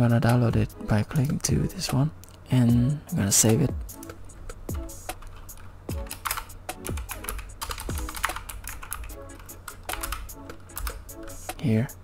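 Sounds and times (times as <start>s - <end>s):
background music with steady beat: 0.0s - 12.0s
keyboard typing clicks: 5.1s - 11.4s.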